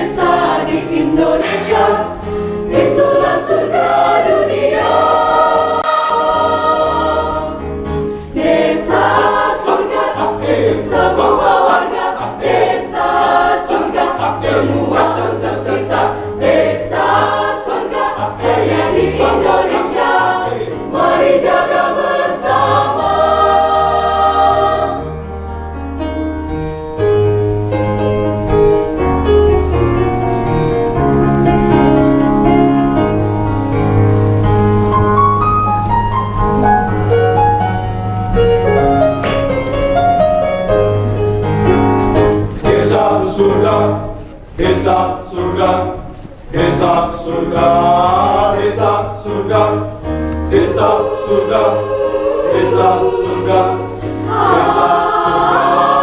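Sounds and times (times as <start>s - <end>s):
mixed choir singing: 0.0s - 25.4s, 38.3s - 56.0s.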